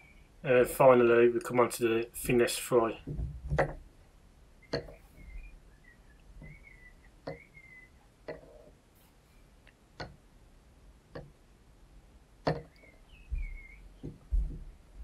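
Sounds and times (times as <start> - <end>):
faint high warbling chirps: 4.6 - 8.1, 12.7 - 14.0.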